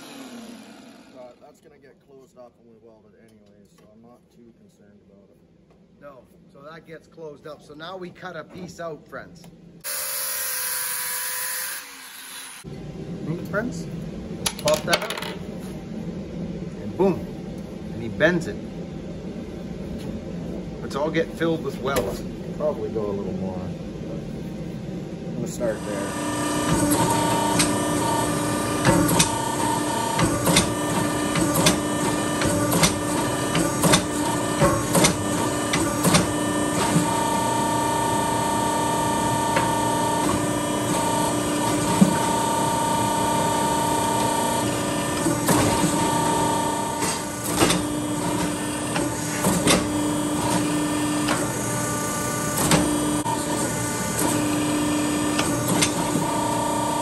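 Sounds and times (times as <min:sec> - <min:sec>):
hydraulic press humming: 0:00.0 - 0:01.4, 0:25.6 - 0:57.0.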